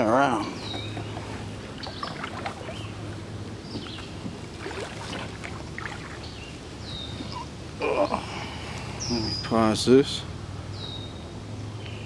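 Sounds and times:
paddle swishing in water: 1.2 - 6.4.

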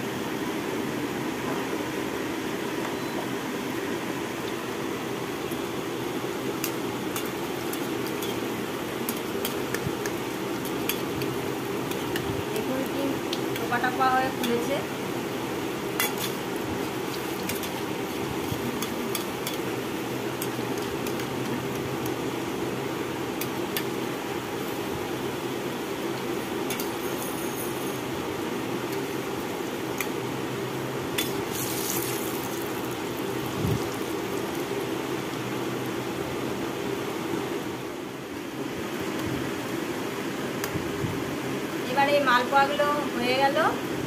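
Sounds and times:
food sizzling in hot oil: 4.9 - 37.9.

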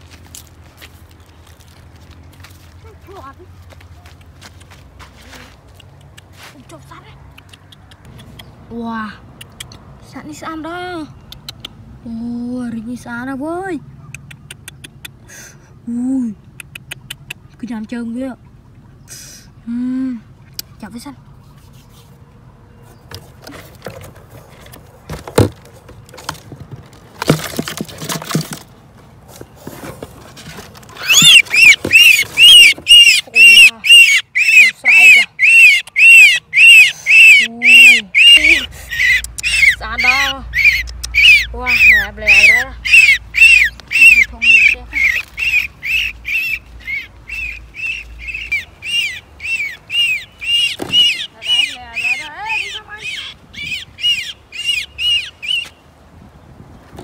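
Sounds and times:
knocks and scraping on cardboard: 23.0 - 28.7, 29.3 - 31.0
scuffling and knocking: 23.0 - 32.9
bird giving harsh distress squawks: 31.0 - 55.8.

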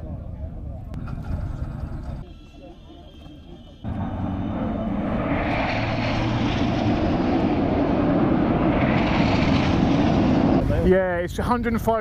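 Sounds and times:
jets flying over: 2.1 - 12.0.

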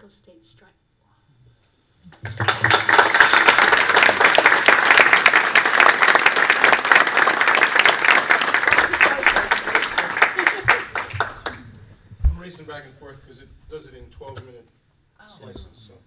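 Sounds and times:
audience applause: 2.1 - 11.8.

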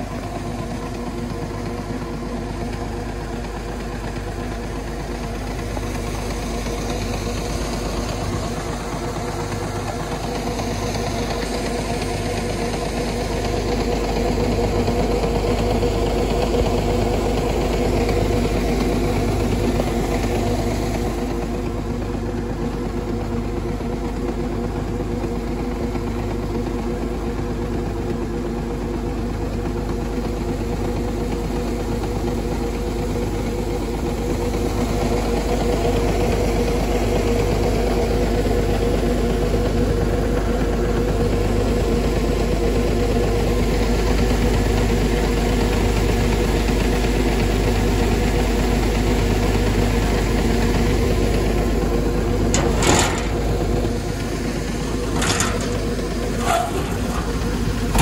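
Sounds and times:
motor humming with pulse: 50.7 - 58.0.

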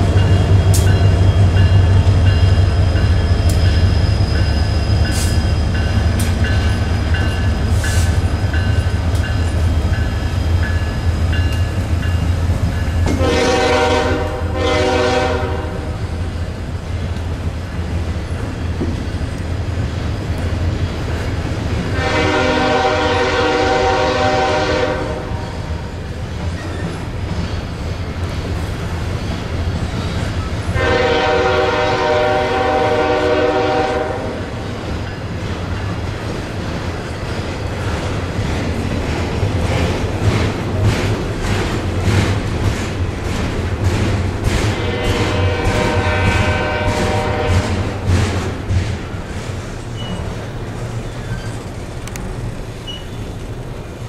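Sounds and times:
diesel locomotives rumbling past: 0.0 - 54.0
locomotive horn: 13.1 - 16.0, 21.8 - 25.7, 30.7 - 34.4, 44.7 - 48.0
container cars rolling by: 46.7 - 54.0.

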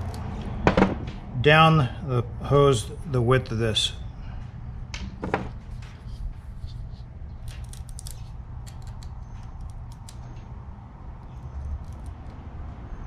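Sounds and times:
steady low hum: 0.0 - 13.0
knife scratching wire braiding: 5.9 - 10.2.

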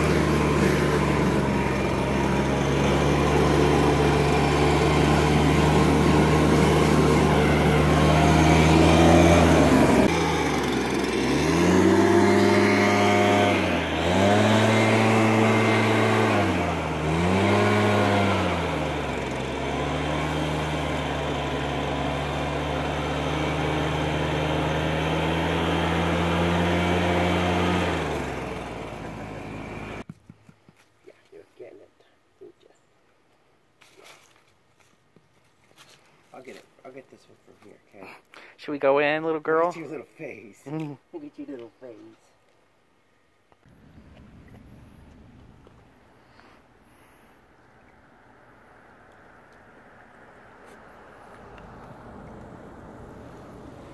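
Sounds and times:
leaf blower engine revving: 0.0 - 30.1, 43.6 - 47.5, 48.3 - 53.9.

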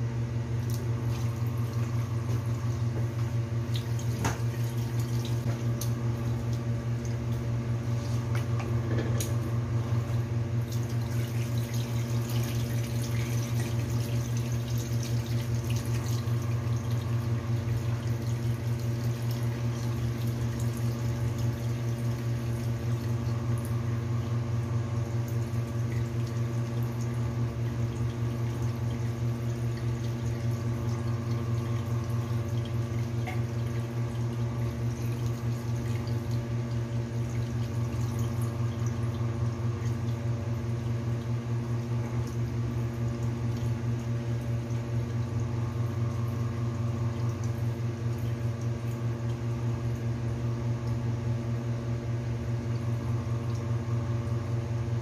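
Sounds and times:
loud steady low hum: 0.0 - 55.0
rice washed in water: 9.9 - 45.1.

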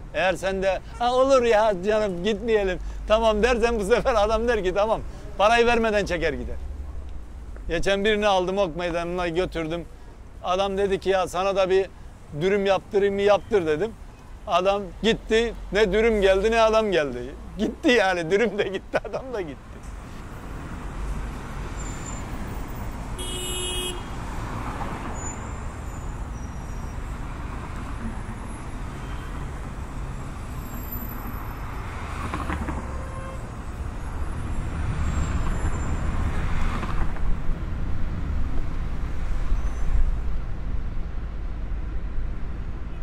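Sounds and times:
low engine and road rumble: 0.0 - 43.0
passing vehicles: 0.0 - 43.0
short car horn toot: 23.2 - 24.2.

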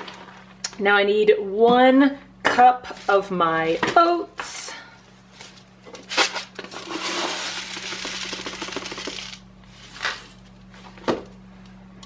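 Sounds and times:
oats pouring into a bowl: 6.8 - 10.2.

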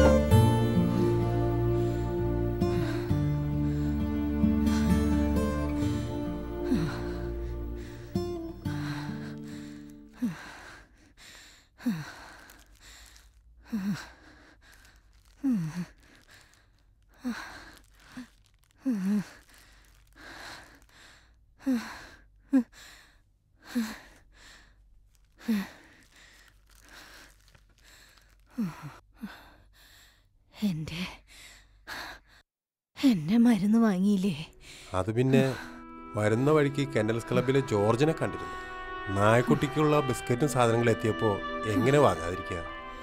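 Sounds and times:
person breathing heavily: 1.5 - 24.8.

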